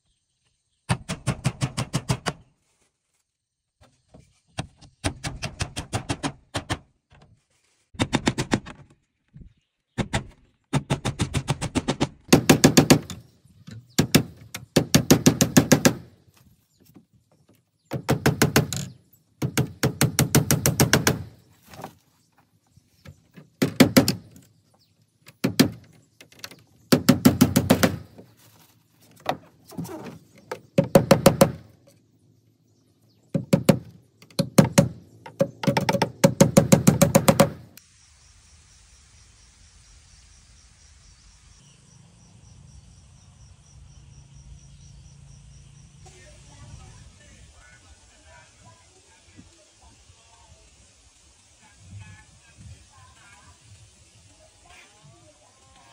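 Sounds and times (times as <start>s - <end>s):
knife hammering nails into bamboo: 10.0s - 16.1s, 17.9s - 21.4s, 23.6s - 24.4s, 25.3s - 28.2s, 30.4s - 31.7s, 33.3s - 37.7s.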